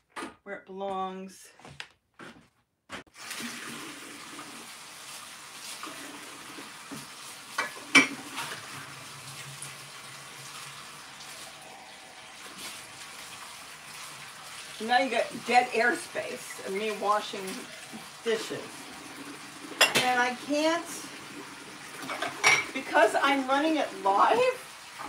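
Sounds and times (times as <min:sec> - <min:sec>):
dishes clattering: 0:07.6 - 0:08.7, 0:19.7 - 0:20.2, 0:22.0 - 0:22.8.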